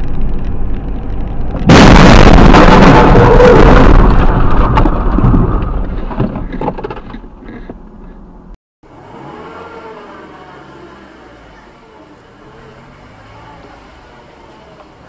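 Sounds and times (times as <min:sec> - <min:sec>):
in-car hum: 0:00.0 - 0:15.0
knocks and rattles: 0:03.9 - 0:07.8.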